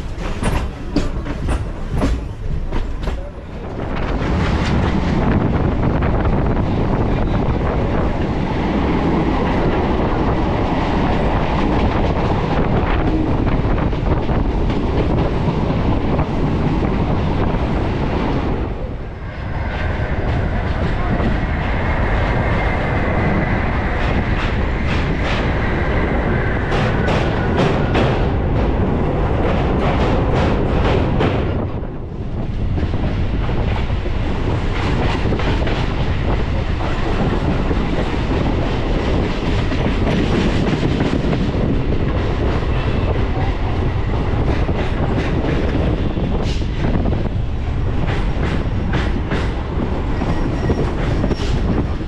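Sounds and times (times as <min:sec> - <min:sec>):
train wheels clattering: 0:00.0 - 0:18.5, 0:19.5 - 0:52.0
train rumbling: 0:00.0 - 0:52.0.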